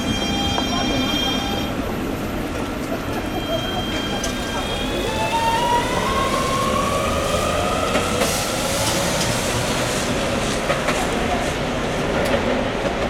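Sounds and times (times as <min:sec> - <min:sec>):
tram motors whining: 0:00.0 - 0:09.9
tram rolling hiss: 0:00.0 - 0:13.0.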